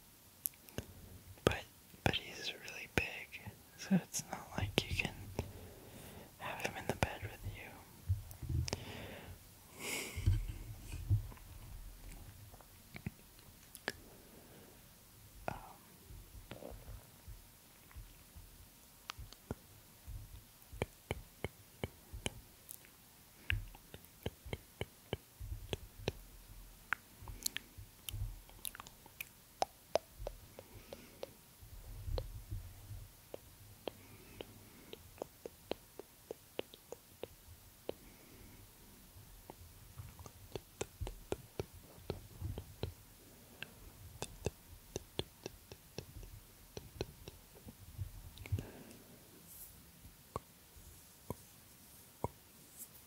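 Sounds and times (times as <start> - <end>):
soft irregular clicks: 0.4 - 3.2, 6.4 - 8.9, 10.2 - 14.0, 15.4 - 49.2
soft low thumps: 8.0 - 8.9, 10.2 - 12.1, 25.4 - 26.4, 27.2 - 28.5, 31.7 - 33.4, 40.0 - 43.0, 45.9 - 48.7.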